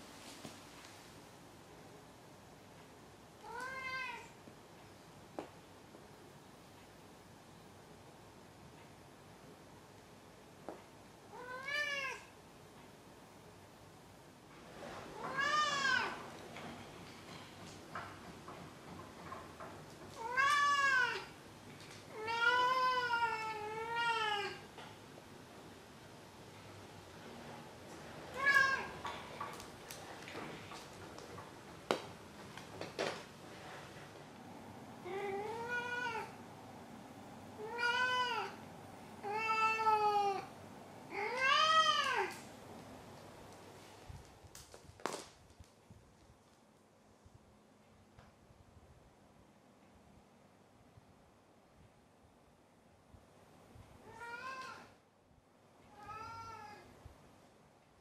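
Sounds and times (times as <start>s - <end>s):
cat meowing: 3.4s - 4.4s, 11.3s - 12.3s, 20.2s - 21.3s, 22.1s - 24.6s, 35.0s - 36.4s, 37.6s - 38.6s, 41.1s - 42.4s, 54.0s - 54.9s, 55.9s - 56.9s.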